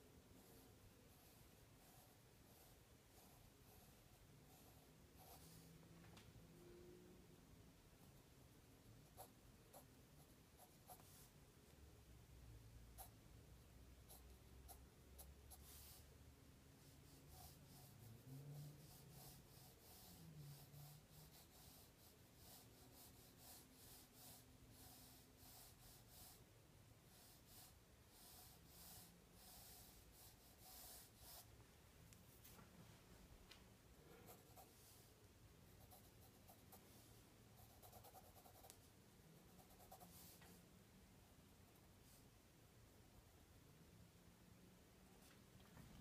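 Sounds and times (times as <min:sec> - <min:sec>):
pencil scratching on paper: 0:00.4 - 0:05.8, 0:09.1 - 0:11.4, 0:14.0 - 0:16.1, 0:16.8 - 0:26.4, 0:27.1 - 0:31.5, 0:34.2 - 0:40.6.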